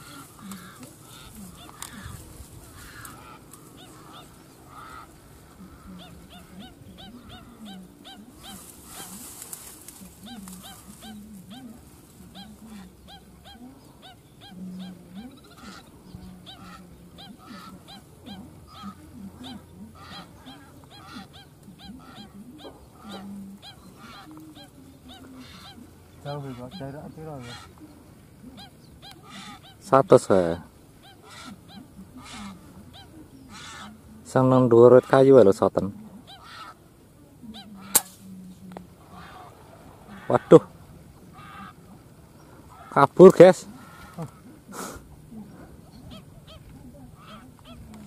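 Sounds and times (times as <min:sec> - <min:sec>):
waterbirds honking: 0:00.0 - 0:48.0.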